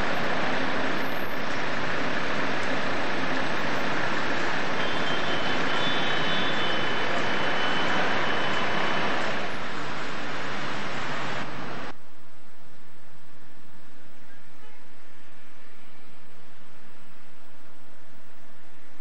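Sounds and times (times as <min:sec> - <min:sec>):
road traffic hiss: 0:00.0 - 0:19.0.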